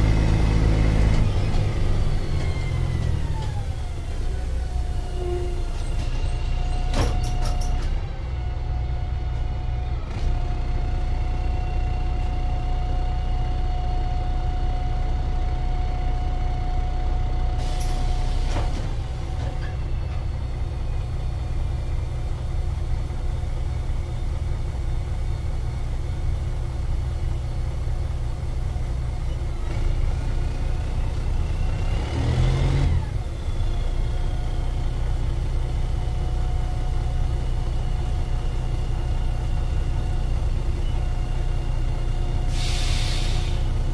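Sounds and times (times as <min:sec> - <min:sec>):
diesel bus engine rumbling: 0:00.0 - 0:43.9
brief hiss: 0:42.5 - 0:43.7.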